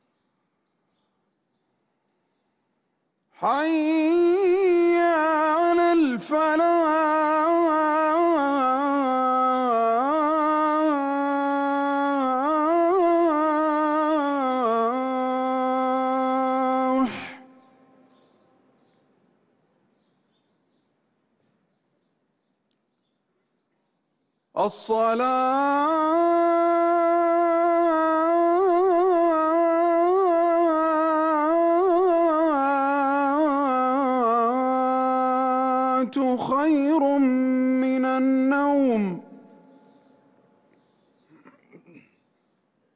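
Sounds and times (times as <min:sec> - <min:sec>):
person chanting call to prayer: 0:03.3 - 0:18.7, 0:24.6 - 0:40.2.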